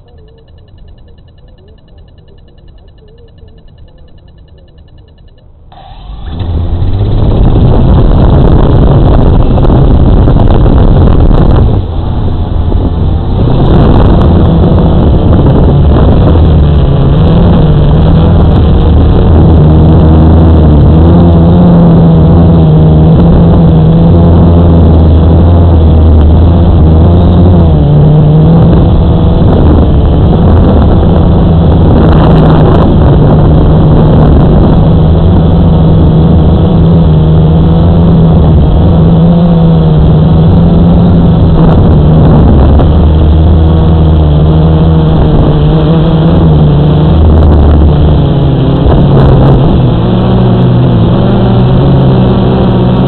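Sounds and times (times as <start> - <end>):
model aircraft motor and propeller: 0.0 - 6.6.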